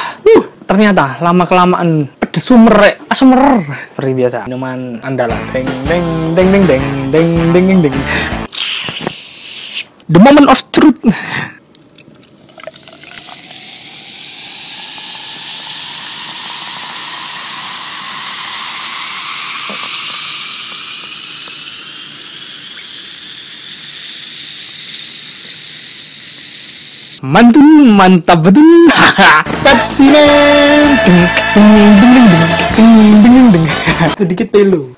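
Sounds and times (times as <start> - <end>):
soda pouring into a glass jar: 11.8 - 26.8
fizzing hiss: 12.4 - 27.0.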